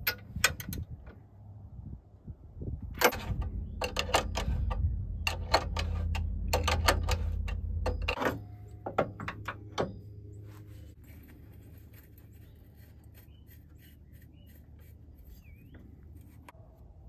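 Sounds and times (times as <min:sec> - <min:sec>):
low steady rumble: 0:00.0 - 0:17.0
metal parts clicking and clinking: 0:03.0 - 0:10.0.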